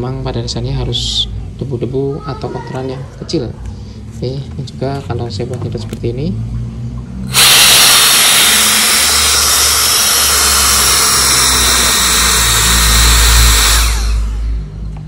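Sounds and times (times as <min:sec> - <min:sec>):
blower high-speed whine: 0:07.2 - 0:15.0.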